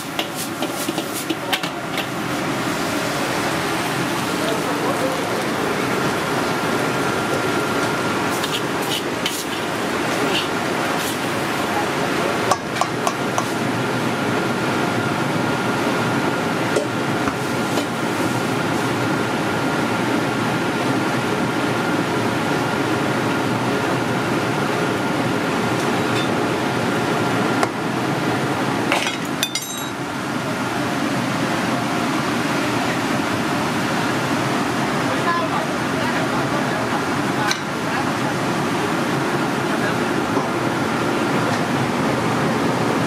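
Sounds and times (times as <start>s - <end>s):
kitchen background rushing noise: 0.0s - 19.5s.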